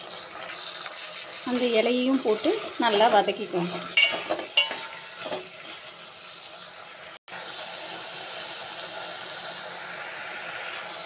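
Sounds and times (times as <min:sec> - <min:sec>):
frying sizzle: 0:00.0 - 0:11.0
spatula scraping steel pot: 0:00.4 - 0:06.1.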